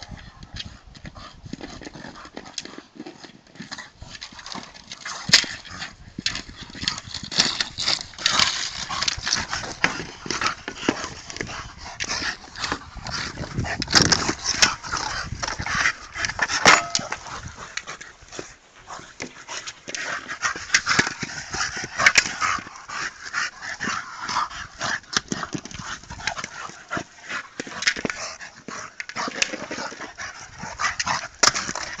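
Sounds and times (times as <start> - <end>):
dogs vocalizing while playing: 0.0 - 32.0.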